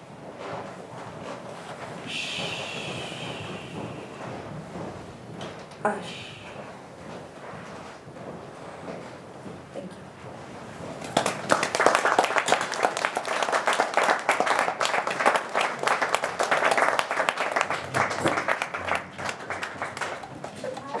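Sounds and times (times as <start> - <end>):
audience applauding: 11.0 - 21.0.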